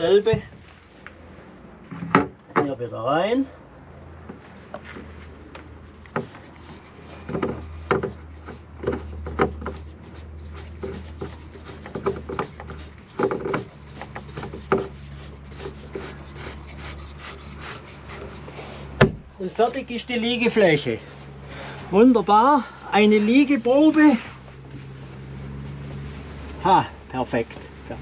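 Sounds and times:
wood rubbing and scraping: 4.2s - 26.8s
wooden knocks: 7.2s - 9.9s, 10.8s - 15.0s.

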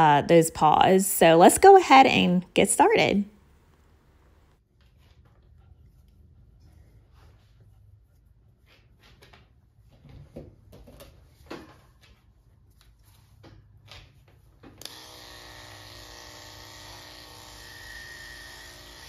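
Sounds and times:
electric clipper humming: 14.8s - 19.0s.

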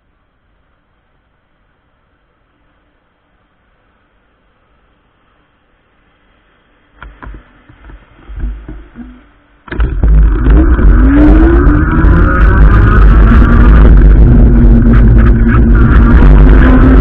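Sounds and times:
wind and road rumble: 0.0s - 17.0s
electric motor whine: 9.7s - 17.0s.

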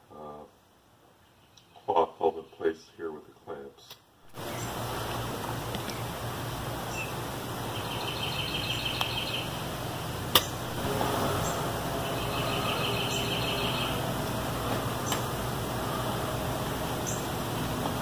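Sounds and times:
steady background hum: 4.2s - 18.0s
bird chirping rapidly: 6.8s - 9.6s, 10.4s - 14.3s, 17.0s - 17.4s
sharp click: 10.3s - 10.6s.

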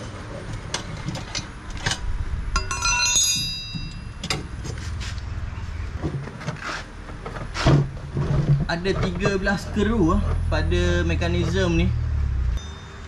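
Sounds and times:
low background rumble: 0.0s - 12.6s
metal tools clicking and knocking: 2.6s - 4.5s
ringing metallic clink: 2.6s - 4.5s, 12.6s - 13.0s.

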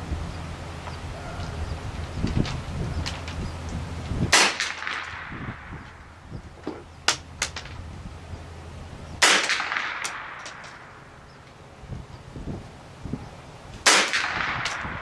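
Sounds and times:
rifle shots with echo: 4.3s - 5.8s, 9.2s - 11.0s, 13.8s - 15.0s.

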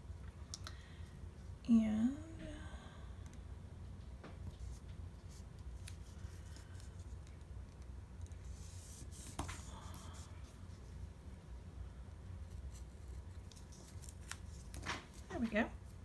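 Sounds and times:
faint paper rustling: 4.2s - 11.1s, 12.4s - 16.0s
hands rubbing tape on paper: 4.6s - 11.0s.

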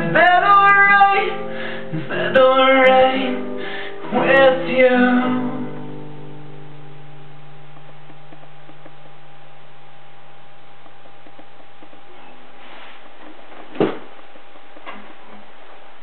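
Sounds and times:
classical guitar chord ringing: 0.0s - 10.7s
steady low hiss: 0.0s - 16.0s.

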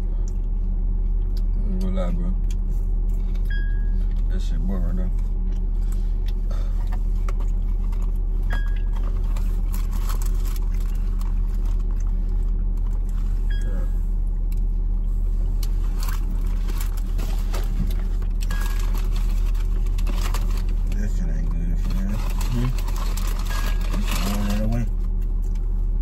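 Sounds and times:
car engine idling: 0.0s - 26.0s.

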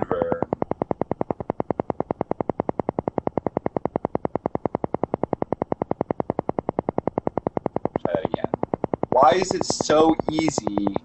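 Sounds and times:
rapid pulsing tone: 0.0s - 11.0s.

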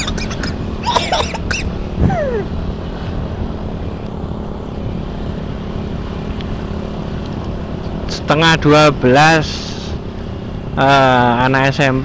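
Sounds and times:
wind rush on microphone: 1.8s - 3.4s.

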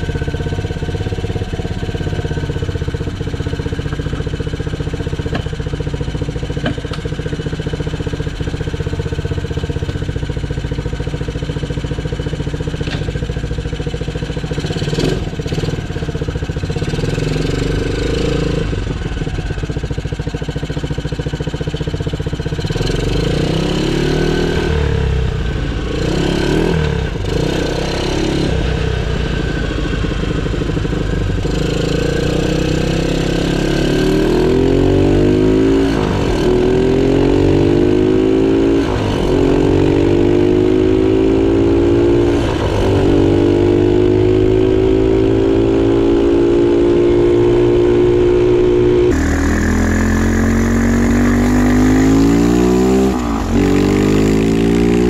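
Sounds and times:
engine revving under load: 22.6s - 55.0s.

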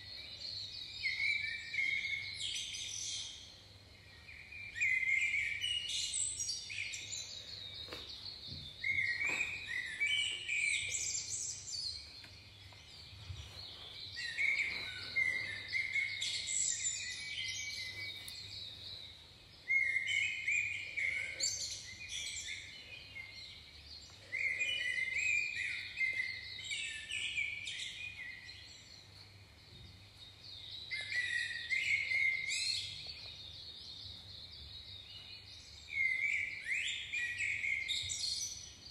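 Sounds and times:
birds singing: 0.0s - 38.9s.

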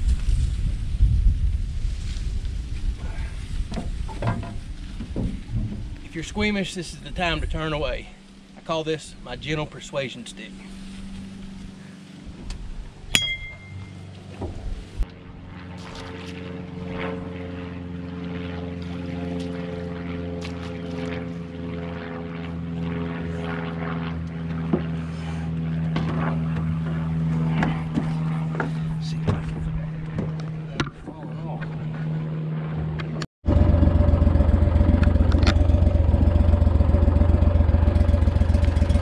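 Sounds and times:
boat motor running: 23.9s - 39.0s.

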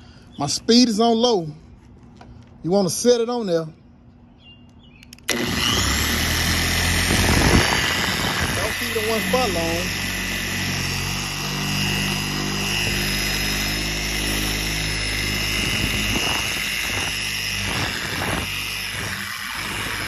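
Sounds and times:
electric polisher motor whine: 5.2s - 20.0s.

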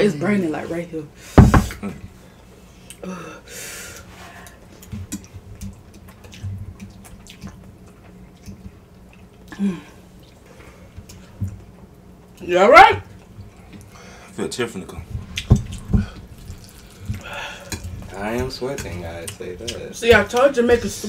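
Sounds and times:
loud knock: 1.4s - 1.8s.

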